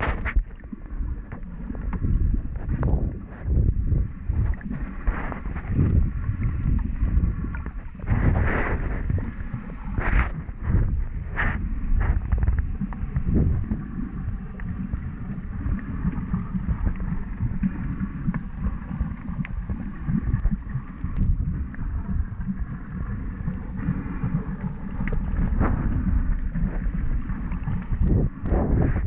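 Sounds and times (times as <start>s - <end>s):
muffled underwater rumble: 0.0s - 29.0s
faint clicks: 25.0s - 25.3s.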